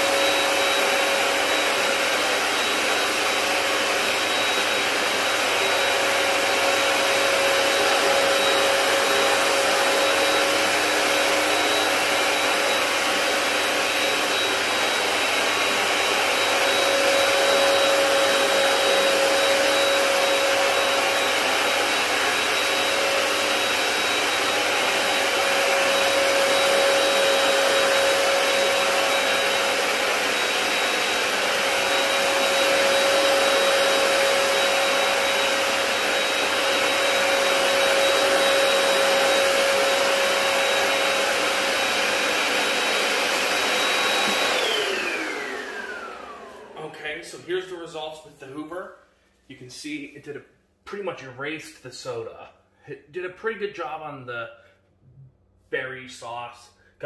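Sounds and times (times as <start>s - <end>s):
carpet cleaner motor whining: 0.0s - 47.2s.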